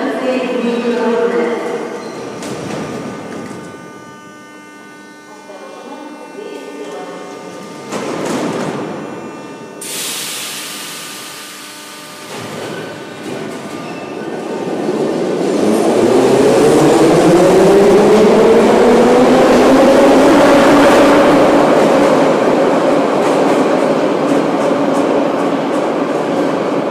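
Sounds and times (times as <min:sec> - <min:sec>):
motor whine rising in pitch: 0:01.7 - 0:09.9.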